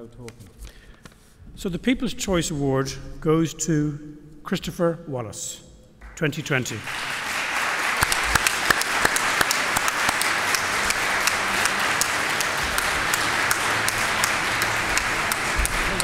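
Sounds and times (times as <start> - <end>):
audience applauding: 6.0 - 16.0
close individual claps: 6.0 - 16.0.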